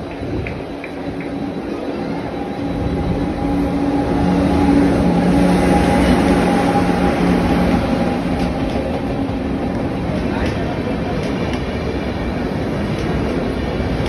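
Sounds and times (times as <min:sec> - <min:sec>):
electric locomotive hum: 0:00.0 - 0:14.0
train wheels rumbling on rail: 0:00.0 - 0:14.0.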